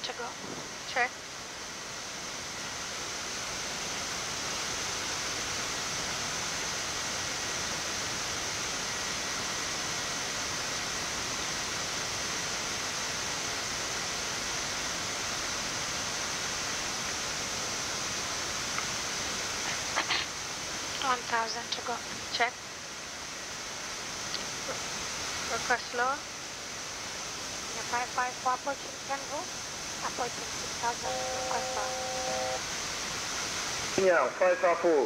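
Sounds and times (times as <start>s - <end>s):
airflow hiss: 0.2s - 35.0s
high steady whine: 30.0s - 32.8s.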